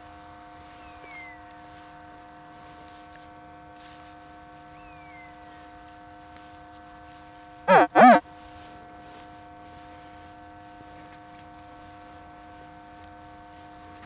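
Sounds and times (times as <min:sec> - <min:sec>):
faint steady hum: 0:04.2 - 0:11.0
metal detector target tones: 0:07.7 - 0:08.2.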